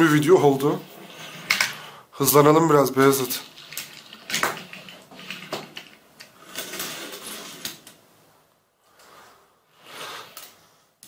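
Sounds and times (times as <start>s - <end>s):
toy car wheels rolling: 3.1s - 8.0s.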